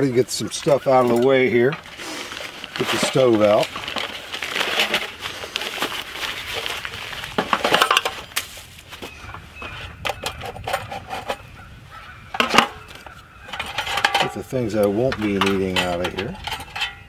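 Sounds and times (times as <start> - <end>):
nylon sack rustling: 0.3 - 9.2
metal panels clinking: 7.3 - 8.5, 12.3 - 17.0.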